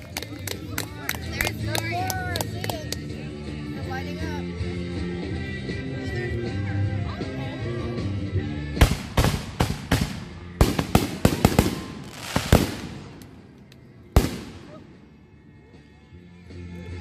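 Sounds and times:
fireworks bangs: 8.8s - 13.3s, 14.2s - 14.8s.

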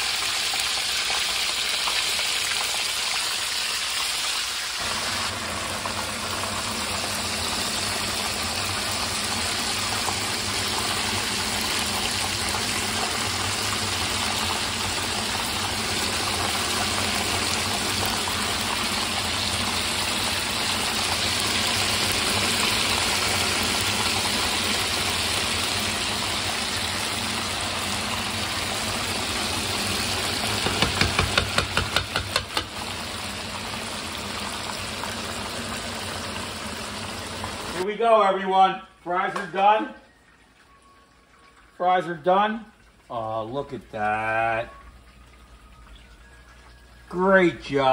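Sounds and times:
fish frying in hot oil: 0.0s - 37.8s
sharp knocks: 30.6s - 32.7s.

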